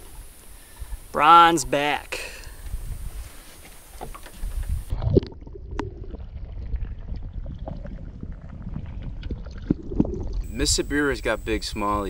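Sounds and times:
muffled underwater sloshing: 0:02.7 - 0:12.0.

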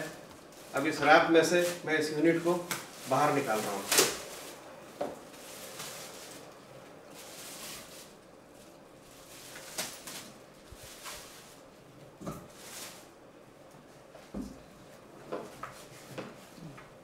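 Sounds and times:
plastic wrap crinkling: 0:00.0 - 0:13.4.

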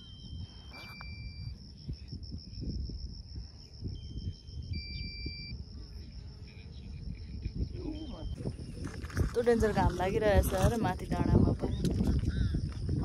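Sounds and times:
insect chirring: 0:00.0 - 0:13.0
wind rumble on microphone: 0:00.0 - 0:13.0.

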